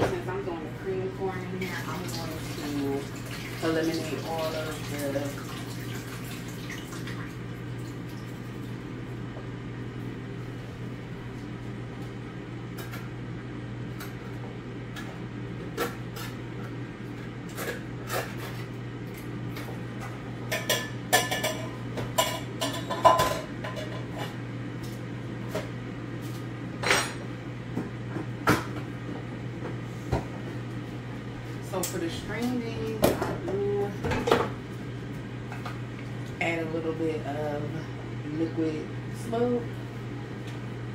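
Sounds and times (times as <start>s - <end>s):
steady low hum: 0.0s - 40.9s
cookware clinking and knocking: 20.6s - 24.2s.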